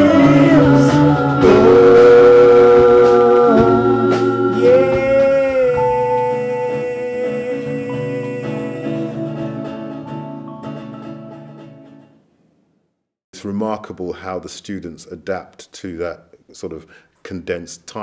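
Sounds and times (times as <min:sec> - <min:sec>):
man singing long notes: 0:00.0 - 0:09.7
live band playing: 0:00.0 - 0:11.4.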